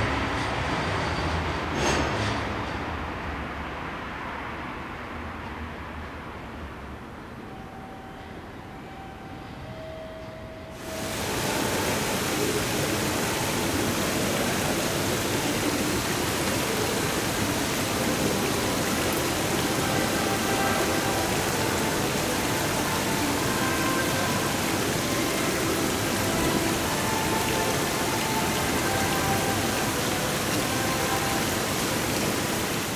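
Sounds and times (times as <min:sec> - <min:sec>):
distant voices: 0:10.8 - 0:32.9.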